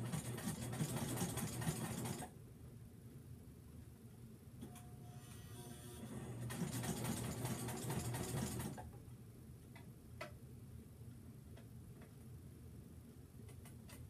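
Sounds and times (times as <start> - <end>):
sewing machine stitching: 0.0 - 2.3, 6.1 - 8.8.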